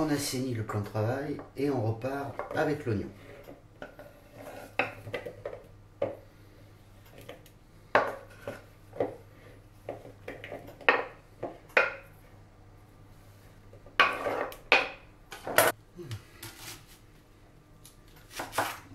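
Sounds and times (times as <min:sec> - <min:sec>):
knife scraping wooden board: 0:03.2 - 0:05.0, 0:08.0 - 0:08.7, 0:14.0 - 0:14.6, 0:18.3 - 0:18.9.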